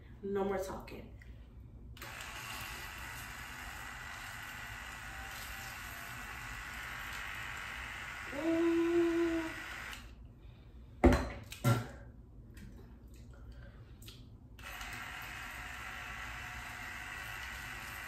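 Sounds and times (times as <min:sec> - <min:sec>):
water flosser spraying: 0:02.0 - 0:10.0, 0:14.6 - 0:18.0.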